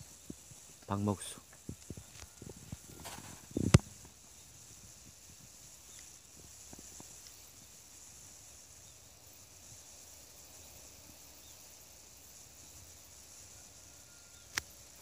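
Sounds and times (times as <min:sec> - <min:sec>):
high-pitched hiss: 0:00.0 - 0:15.0
faint ticks: 0:00.2 - 0:04.2, 0:04.8 - 0:07.7, 0:14.1 - 0:15.0.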